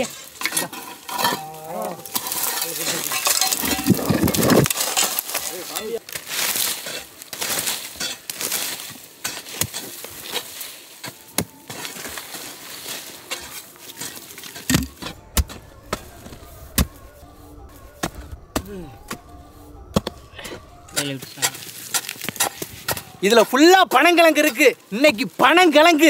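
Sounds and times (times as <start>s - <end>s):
tools digging into soil: 0.0s - 15.6s, 19.9s - 23.5s
low rumble: 14.9s - 21.0s.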